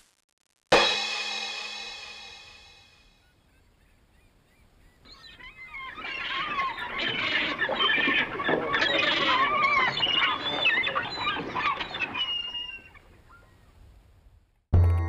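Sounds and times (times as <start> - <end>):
flock of birds calling: 3.2 - 13.8.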